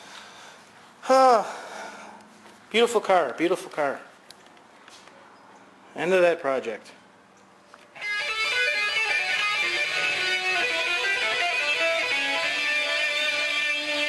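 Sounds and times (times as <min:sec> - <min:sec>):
electric guitar playing: 0:08.0 - 0:14.0.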